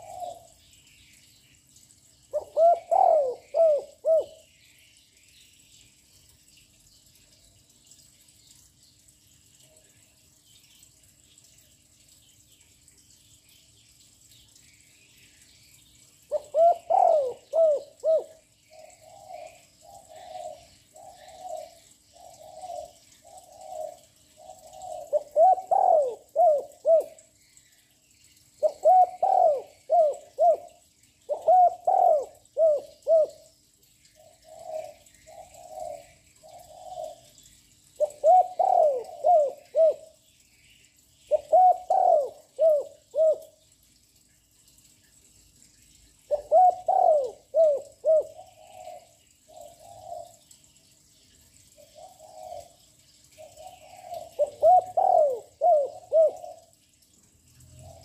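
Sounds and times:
dove cooing: 0.0s - 0.6s, 2.3s - 4.4s, 16.3s - 27.2s, 28.6s - 33.5s, 34.4s - 37.3s, 38.0s - 40.1s, 41.3s - 43.5s, 46.3s - 50.5s, 52.0s - 52.8s, 53.4s - 56.8s.

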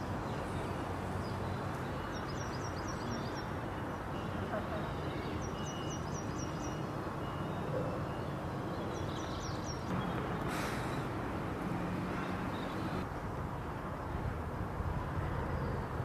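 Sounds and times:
small birds chirping: 0.0s - 11.2s
brief rushing hiss: 10.4s - 11.1s.

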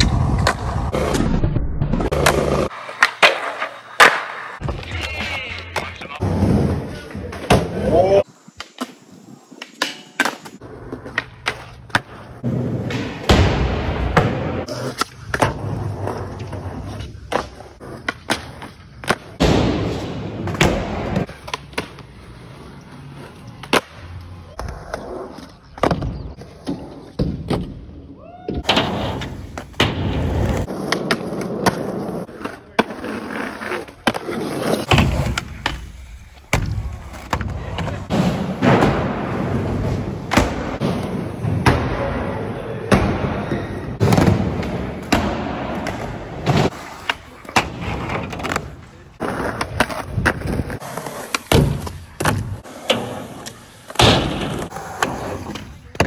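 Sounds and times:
skateboard wheels rolling on concrete: 0.0s - 56.0s
skateboard pops and clacks: 2.1s - 4.7s.

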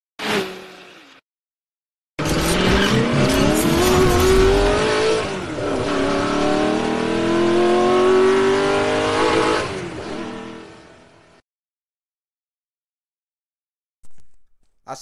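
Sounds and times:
race car engine revving: 2.2s - 11.0s.

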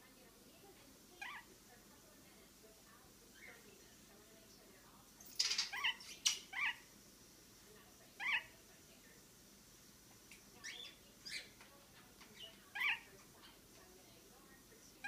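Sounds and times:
parakeet chirping: 1.1s - 1.6s, 3.3s - 3.9s, 5.3s - 7.0s, 8.0s - 8.6s, 10.5s - 13.8s.

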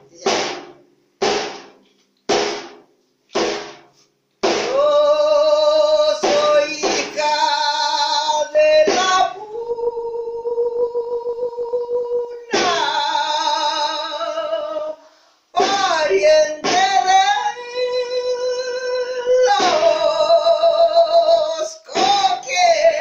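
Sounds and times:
frame drum strokes: 0.0s - 5.0s, 6.2s - 7.5s, 8.2s - 9.4s, 12.5s - 13.1s, 15.6s - 17.6s, 19.5s - 20.2s, 21.9s - 23.0s.

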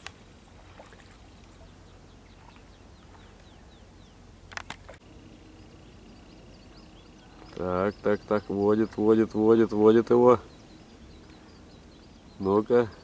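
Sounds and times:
sharp clicks: 4.5s - 5.0s.

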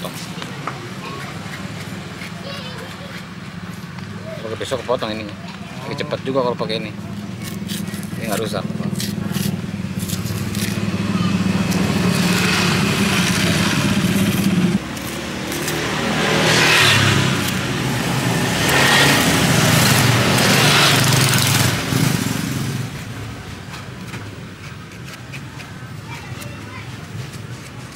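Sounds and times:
motorbikes passing: 0.0s - 27.9s.

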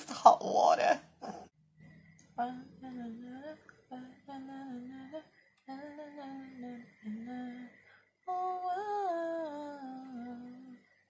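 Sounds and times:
woman humming: 2.4s - 10.9s.

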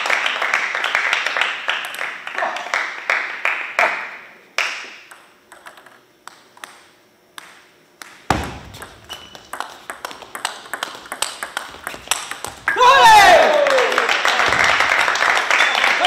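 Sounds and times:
table tennis ball clicking: 5.1s - 8.2s, 8.8s - 12.7s
heavier knock: 8.3s - 8.9s.

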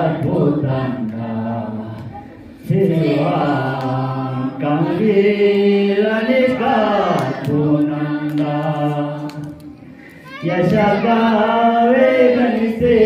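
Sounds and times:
man singing unaccompanied: 10.4s - 13.0s.

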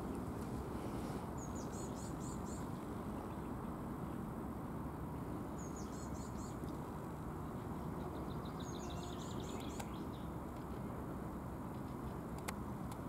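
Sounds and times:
low outdoor rumble: 0.0s - 13.0s
small songbirds chirping: 1.2s - 4.3s, 5.2s - 10.4s.

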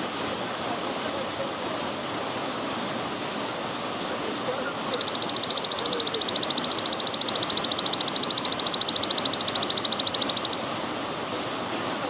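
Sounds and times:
grasshopper buzzing trill: 4.9s - 10.6s.

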